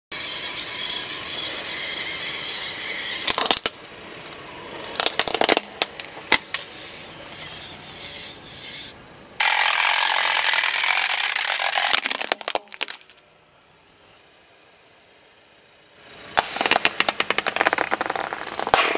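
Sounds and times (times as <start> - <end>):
plastic cracking: 3.3 - 3.9, 4.8 - 6.6, 9.9 - 13.2, 16.6 - 18.9
tyre grinding over asphalt: 16.4 - 18.9.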